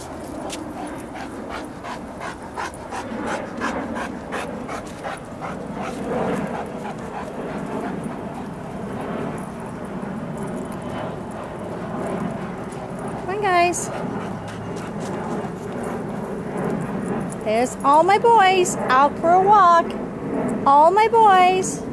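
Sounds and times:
large dog panting: 0.0 - 17.3.

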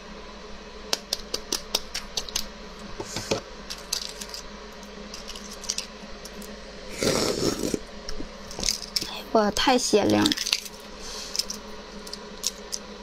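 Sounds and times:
eggshell crackling: 1.0 - 2.5, 3.6 - 12.9
sucking sound: 6.9 - 7.8.

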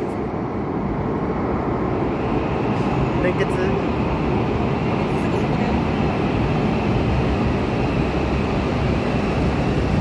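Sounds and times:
train rumbling past: 0.0 - 10.0.

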